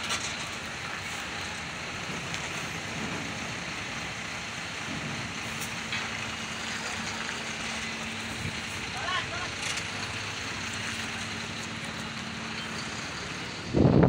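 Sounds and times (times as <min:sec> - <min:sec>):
ship engines running: 0:00.0 - 0:14.0.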